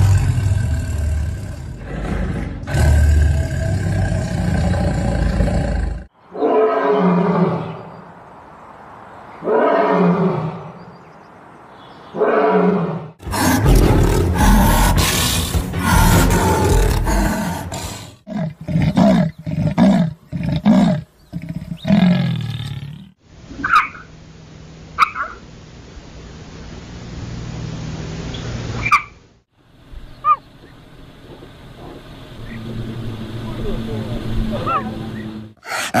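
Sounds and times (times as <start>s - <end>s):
animals snarling and growling: 0.0s - 7.8s, 12.2s - 23.2s, 34.4s - 36.0s
steady hiss: 21.8s - 34.5s.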